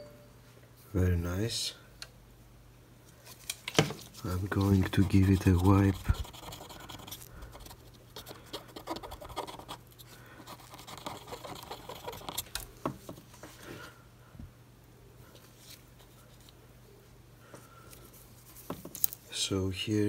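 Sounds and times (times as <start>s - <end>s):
cotton swab scratching circuit board: 4.2s - 12.7s.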